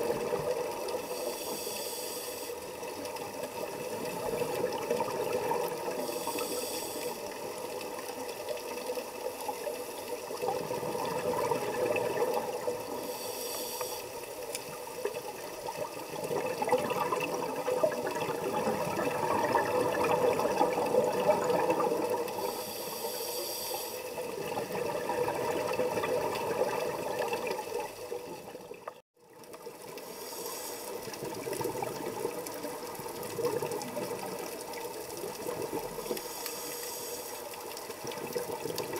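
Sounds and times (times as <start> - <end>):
regulator inhalation hisses: 1.0 - 2.9, 5.9 - 7.7, 12.8 - 14.5, 22.3 - 24.3, 30.1 - 31.1, 36.2 - 37.6
exhaled bubbles burbling: 10.4 - 12.9, 15.3 - 22.4, 24.3 - 28.9.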